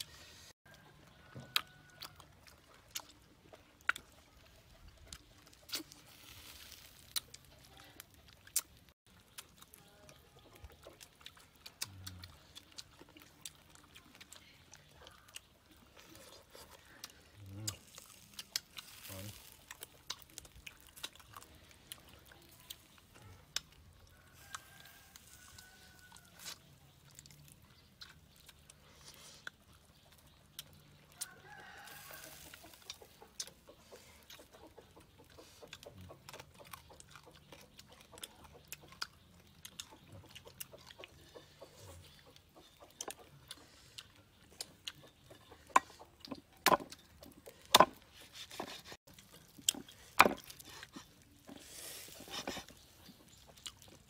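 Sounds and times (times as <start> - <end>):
chicken clucking: 32.5 - 47.2
cleaver chopping on wooden block: 46.7 - 46.9, 47.8 - 48.8.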